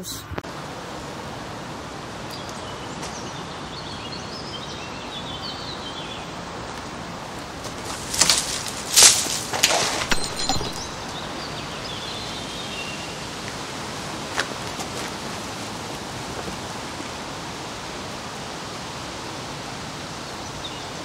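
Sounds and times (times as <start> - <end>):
outdoor background hiss: 0.0 - 21.0
faint high chirps: 10.1 - 13.2.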